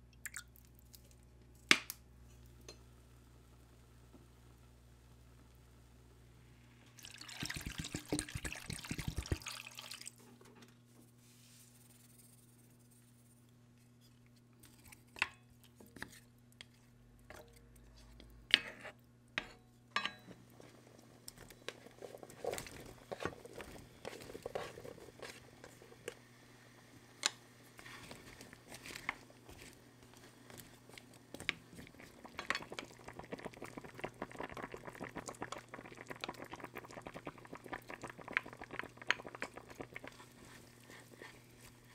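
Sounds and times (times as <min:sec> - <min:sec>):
faint steady hum: 0:00.0 - 0:41.9
broth bubbling: 0:07.0 - 0:10.1, 0:31.8 - 0:40.2
vegetables dropping into liquid: 0:07.0 - 0:10.2
water pouring from a bottle: 0:07.0 - 0:10.2.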